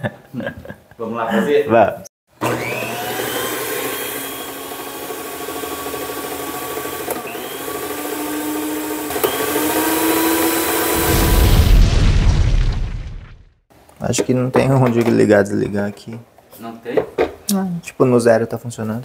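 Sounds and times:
electric mixer motor whining: 2.4s - 11.7s
deep boom: 11.0s - 13.6s.

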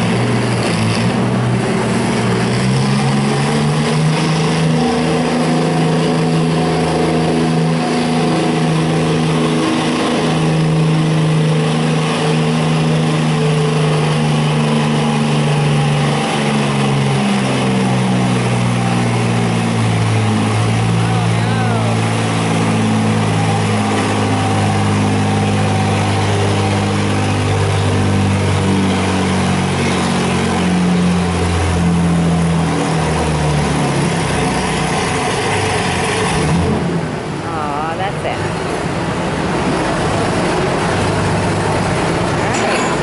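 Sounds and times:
tractor engine running under load: 0.0s - 43.0s.

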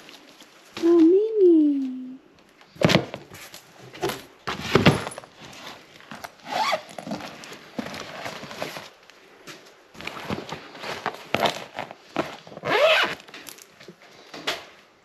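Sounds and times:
suitcase knocks and bumps: 4.0s - 5.3s
zipper rasping: 6.4s - 8.6s, 10.9s - 13.2s.

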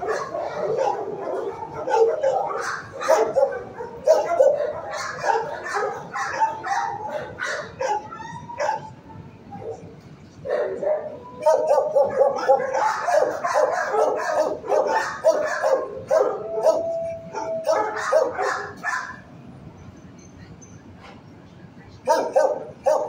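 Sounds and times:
dog whining: 0.0s - 9.8s, 10.9s - 19.1s
dogs barking and yelping: 0.0s - 19.3s, 22.1s - 23.0s.

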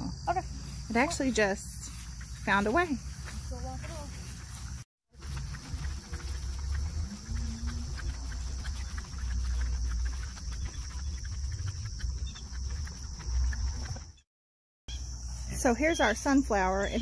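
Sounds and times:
high-pitched insect chorus: 0.0s - 14.2s, 14.9s - 17.0s
low uneven rumble: 0.6s - 14.1s.

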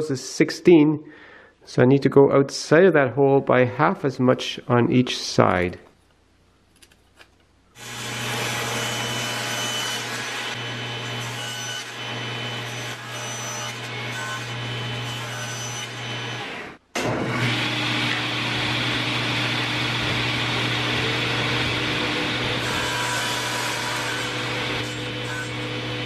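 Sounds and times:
saw blade cutting wood: 7.8s - 26.0s
table saw motor hum: 7.8s - 26.0s.

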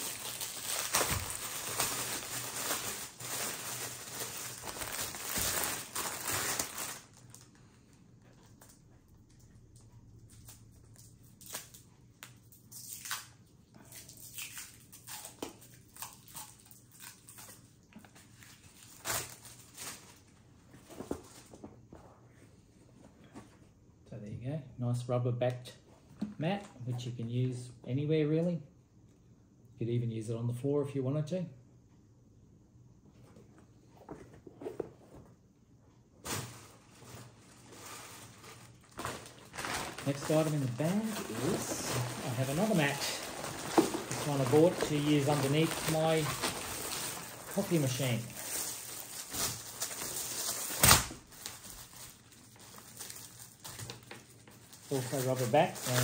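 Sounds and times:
packaging rustling: 0.0s - 7.7s, 36.2s - 56.0s.

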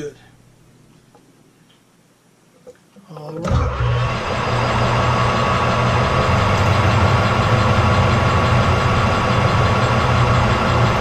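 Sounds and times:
metal lathe hum and whine: 3.5s - 11.0s.

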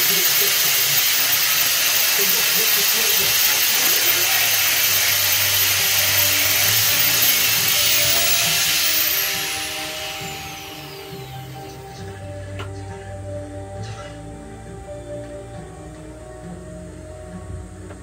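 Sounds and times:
machine hiss with high-pitched whine: 0.0s - 14.2s
soft music: 0.0s - 18.0s.

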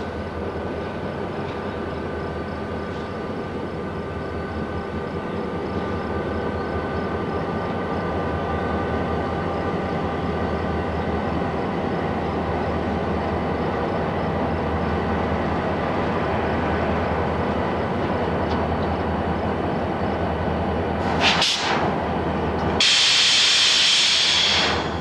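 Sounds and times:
diesel locomotive engine drone: 0.0s - 25.0s
compressed air hiss: 21.0s - 21.9s, 22.8s - 25.0s.

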